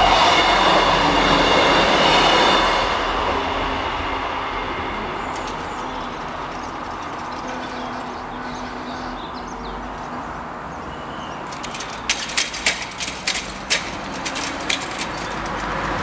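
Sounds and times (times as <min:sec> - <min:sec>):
car clunking over crossing: 0:05.1 - 0:16.0.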